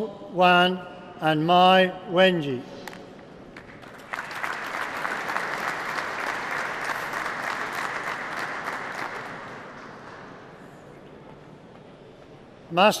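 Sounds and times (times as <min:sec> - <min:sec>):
audience applause: 0:03.7 - 0:10.0.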